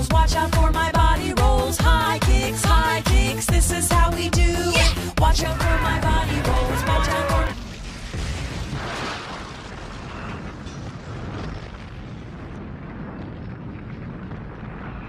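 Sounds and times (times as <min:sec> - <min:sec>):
deep rumble of fire and debris: 0:07.5 - 0:15.0
explosion blast: 0:07.5 - 0:15.0.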